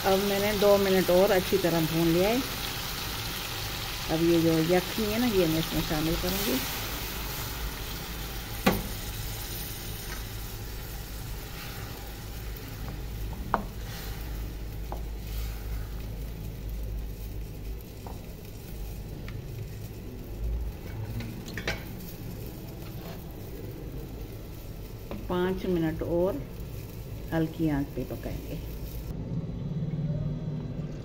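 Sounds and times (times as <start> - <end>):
curry sizzling in a pot: 0.0 - 29.2.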